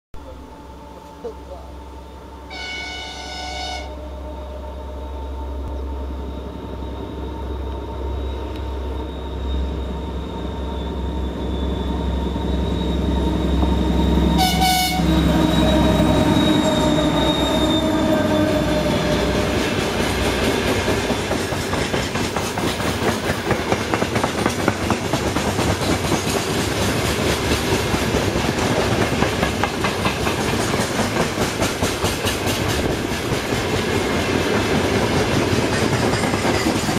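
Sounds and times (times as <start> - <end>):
diesel locomotive drone: 0.2 - 36.9
locomotive horn: 0.3 - 6.0, 14.3 - 19.8.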